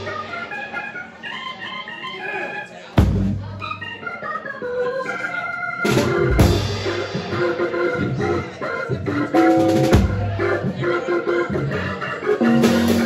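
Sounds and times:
drum and cymbal accents: 0:00.0 - 0:00.6, 0:05.9 - 0:08.6, 0:09.3 - 0:10.8, 0:12.4 - 0:13.0
jazz combo playing: 0:00.0 - 0:01.8, 0:03.0 - 0:04.2, 0:05.8 - 0:13.0.

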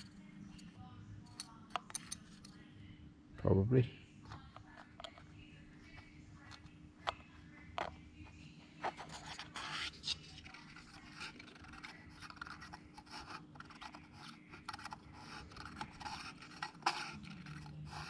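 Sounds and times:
plastic parts rubbing and scraping: 0:08.8 - 0:18.0.

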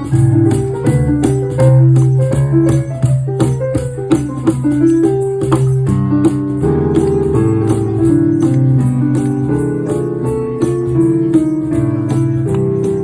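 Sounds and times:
electronic keyboard chords and melody: 0:00.0 - 0:13.0
hand percussion beat: 0:00.0 - 0:13.0.

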